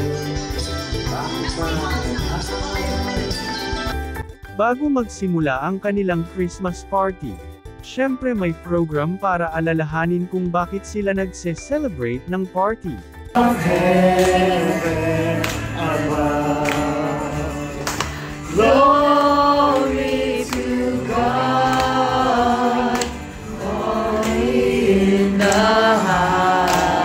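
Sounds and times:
backing music: 0:00.0 - 0:27.0
group singing a worship song: 0:13.4 - 0:27.0.

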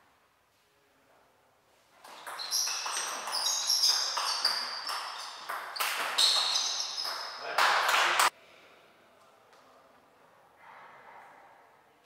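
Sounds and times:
shoes squeaking on floor: 0:01.9 - 0:07.6.

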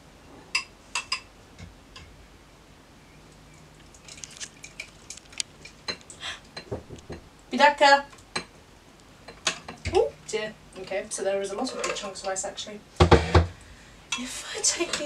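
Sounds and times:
spoon ticking and scraping ice: 0:03.8 - 0:06.1.

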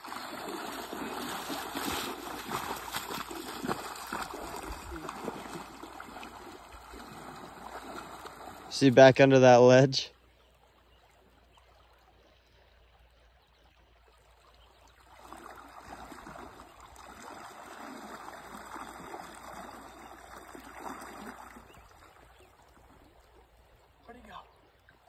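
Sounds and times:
water sloshing around legs: 0:00.0 - 0:08.8, 0:14.7 - 0:24.2.

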